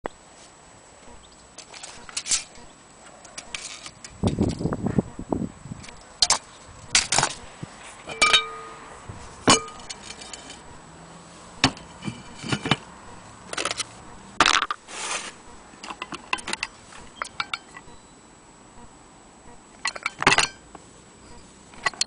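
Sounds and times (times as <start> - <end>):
metal clock parts clinking: 8.1 - 8.8, 9.5 - 10.7, 15.8 - 17.9, 19.8 - 20.6.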